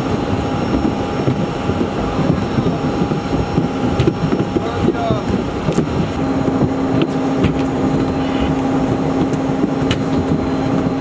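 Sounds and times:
aircraft engines running: 0.0s - 11.0s.

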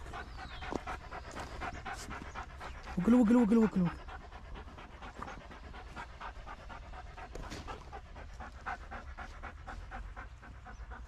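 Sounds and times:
dog panting: 0.0s - 11.0s.

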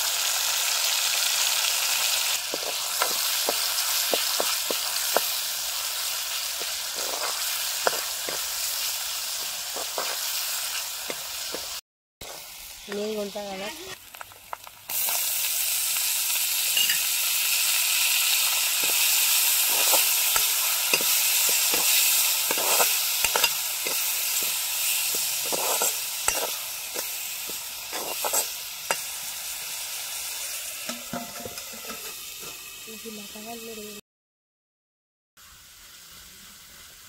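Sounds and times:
tomatoes sizzling in hot oil: 0.0s - 34.0s, 35.4s - 37.0s
metal ladle scraping a pan: 2.5s - 5.2s, 6.6s - 8.9s, 18.4s - 29.3s, 30.8s - 32.6s.

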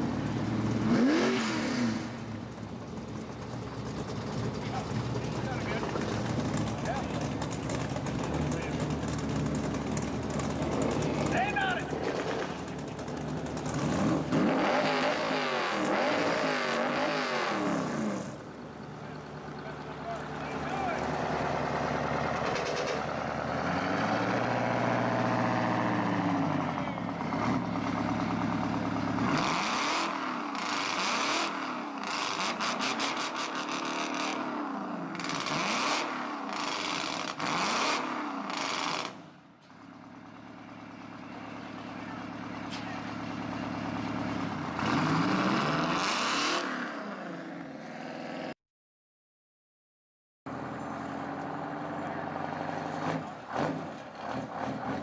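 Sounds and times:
hot rod engine revving: 0.0s - 39.2s, 40.2s - 48.5s, 51.1s - 55.0s.

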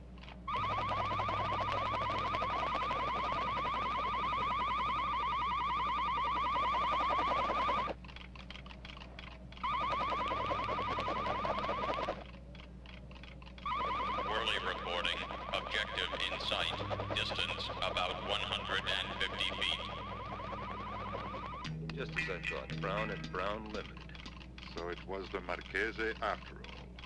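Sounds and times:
electronic alarm warble: 0.5s - 8.0s, 9.6s - 12.3s, 13.6s - 24.4s.

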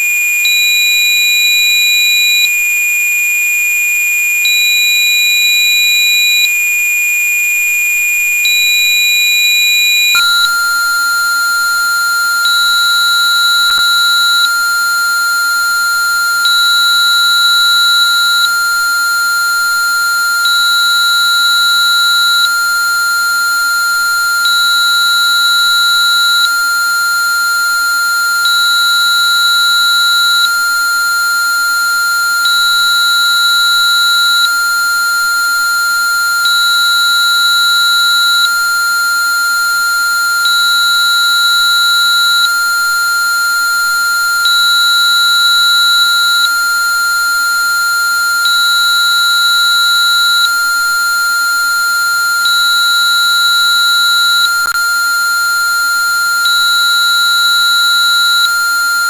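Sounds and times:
steady pure sine tone: 7.6s - 59.0s
higher tone switching on and off: 8.4s - 14.6s
faint very high tones: 8.6s - 14.7s.

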